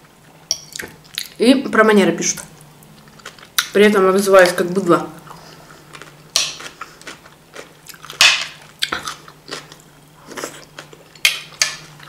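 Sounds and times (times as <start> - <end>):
person chewing crunchy food: 3.0 - 3.8, 5.2 - 12.0.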